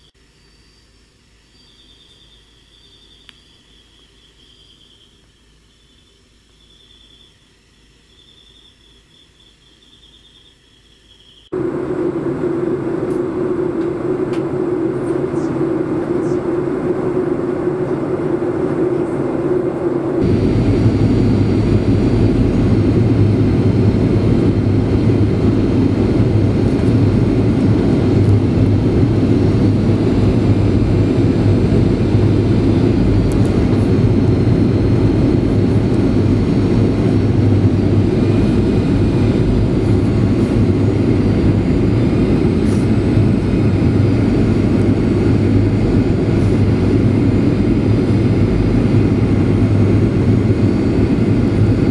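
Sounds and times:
jet engine rumble in cabin: 11.5 - 51.9.

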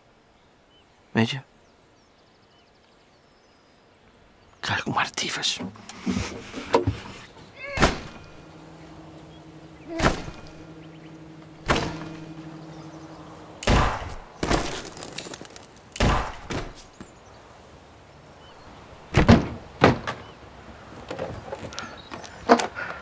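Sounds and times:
guitar strings ringing: 7.6 - 13.6.

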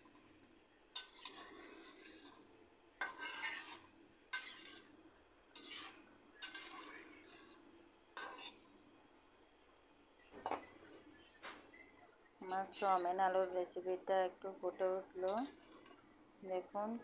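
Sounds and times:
metal spatula scraping a pan: 0.9 - 7.6, 8.2 - 8.7, 12.4 - 13.8, 15.2 - 16.0.

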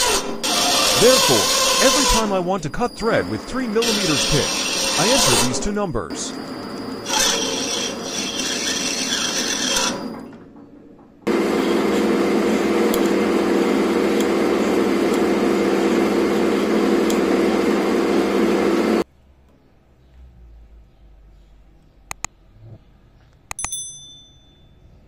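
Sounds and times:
file rubbing on metal: 0.0 - 2.5, 3.8 - 5.6, 7.1 - 10.1
lathe humming: 0.0 - 10.2, 11.3 - 19.0
threading tool scraping: 7.1 - 10.2.

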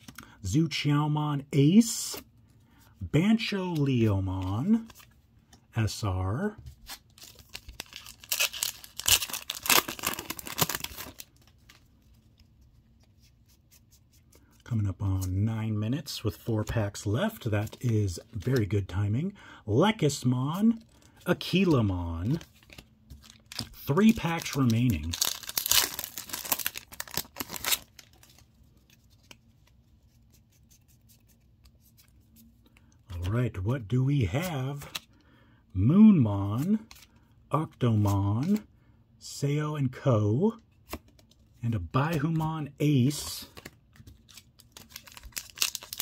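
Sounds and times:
foil wrapper tearing and crinkling: 7.2 - 11.3, 23.2 - 28.3, 44.3 - 46.0.

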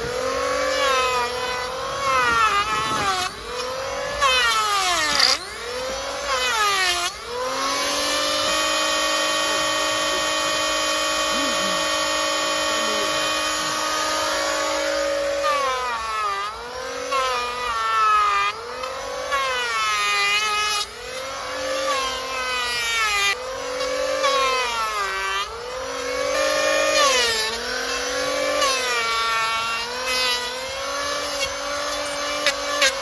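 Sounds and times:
angle grinder whining: 0.0 - 33.0.

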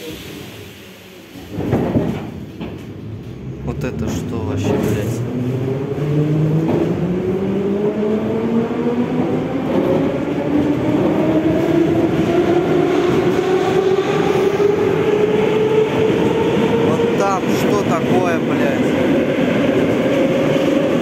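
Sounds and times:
train wheels rumbling: 0.0 - 21.0.

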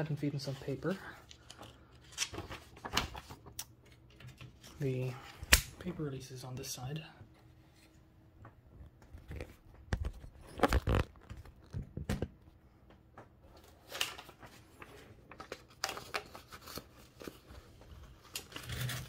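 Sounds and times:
paper rustling in typewriter: 0.9 - 3.6, 13.6 - 19.0.

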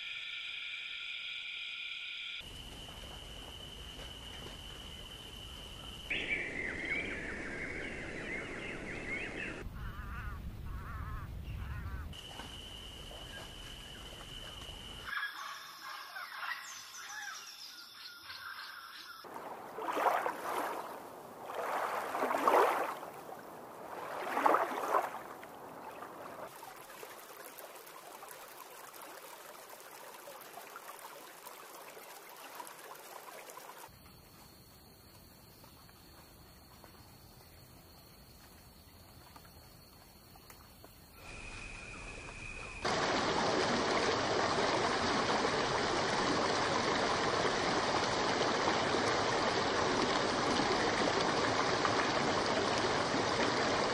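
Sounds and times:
outdoor background noise: 0.0 - 53.9.

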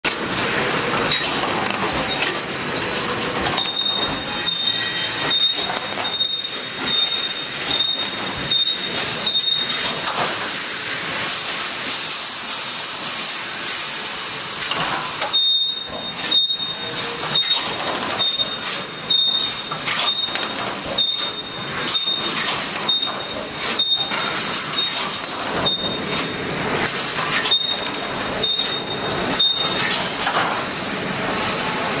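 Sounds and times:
welding machine clatter: 0.0 - 32.0.

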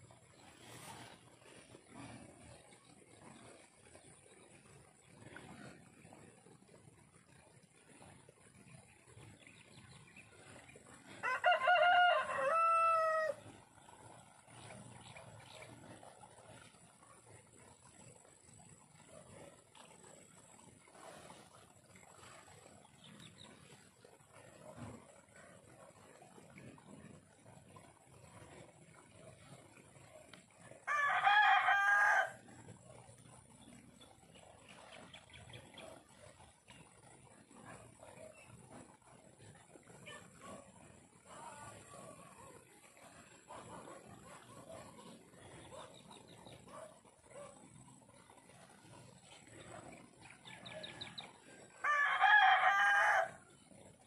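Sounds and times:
rooster crowing: 11.2 - 13.4, 30.8 - 32.4, 51.8 - 53.4.

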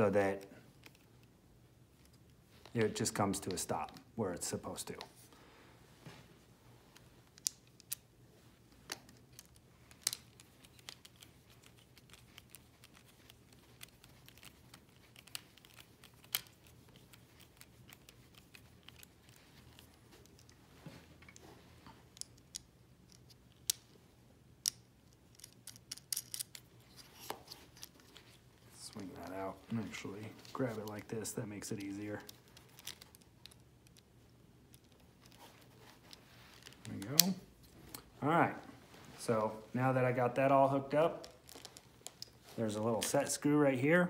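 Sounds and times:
rope and plastic being handled: 6.9 - 24.0, 25.0 - 39.3, 41.1 - 43.4.

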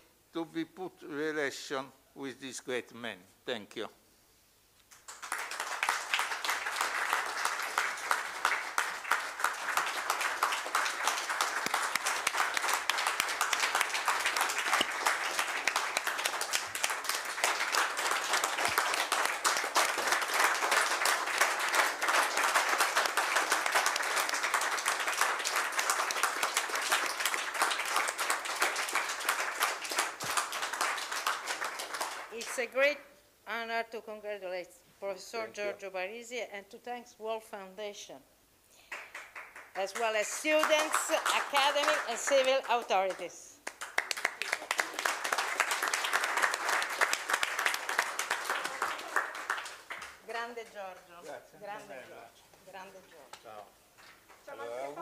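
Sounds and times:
people applauding: 4.9 - 32.6, 38.9 - 50.3, 54.1 - 55.0.

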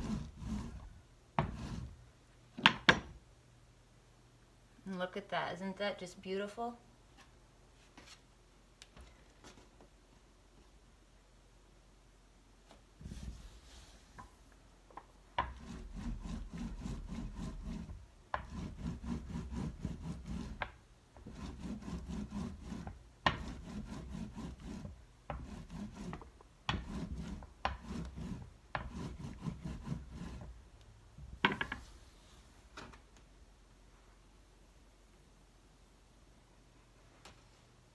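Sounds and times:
rolling pin rolling over clay: 0.0 - 2.0, 13.0 - 30.6.

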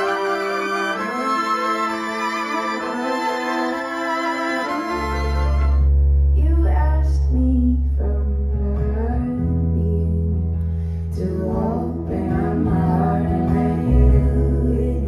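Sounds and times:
acoustic guitar: 0.0 - 15.0
bass guitar low notes: 0.0 - 15.0
woman singing: 6.4 - 15.0.

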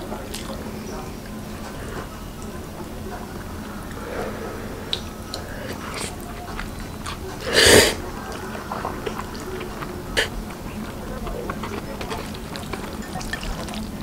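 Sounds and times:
chewing: 0.0 - 14.0
noodles slurped: 3.2 - 14.0.

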